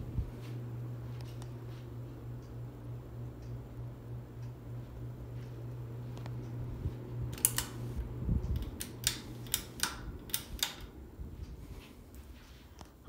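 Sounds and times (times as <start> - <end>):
ceiling fan humming: 0.0 - 13.0
sharp clicks: 7.3 - 7.8, 8.5 - 10.9.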